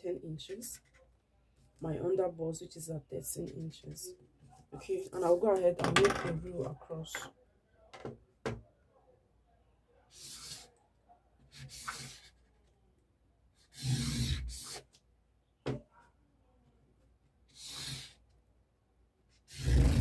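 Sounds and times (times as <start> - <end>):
marker pen scratching on paper: 0.6 - 1.1, 4.5 - 5.6, 10.1 - 10.7, 11.5 - 12.5, 13.6 - 15.0, 17.5 - 18.2, 19.3 - 20.0
rustle and knock on table: 5.8 - 7.3.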